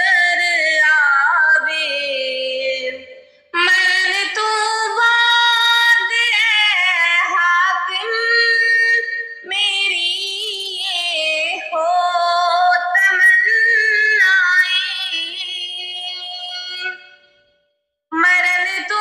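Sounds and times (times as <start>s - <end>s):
high voice singing: 0.0s - 17.2s, 18.2s - 19.0s.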